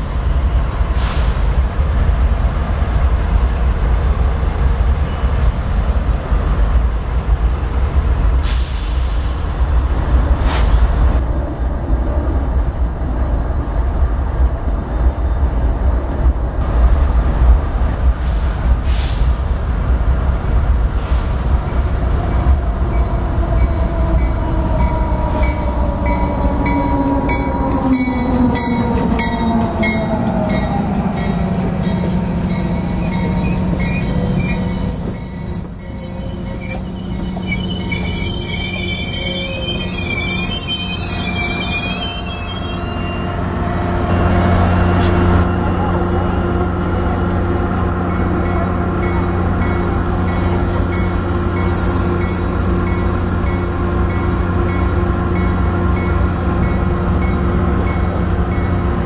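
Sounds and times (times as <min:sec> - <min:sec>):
diesel locomotive engine passing: 0:00.0 - 0:59.0
low rumble of train: 0:00.0 - 0:59.0
high wavering wheel squeal: 0:32.8 - 0:43.4.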